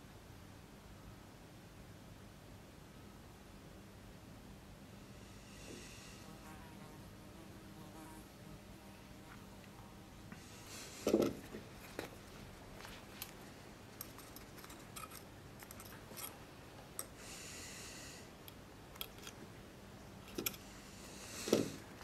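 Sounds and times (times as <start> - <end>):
faint clicks and rustles: 9.2 - 17.2
thread hissing through leather: 20.4 - 22.0.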